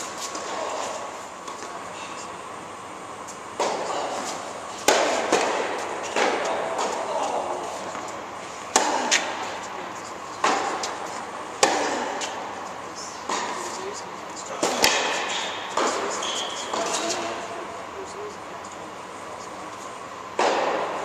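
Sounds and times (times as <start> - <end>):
tennis ball hits echoing: 3.6 - 4.2, 4.8 - 7.1, 10.4 - 11.0, 11.6 - 12.4, 14.6 - 16.1, 20.4 - 21.0.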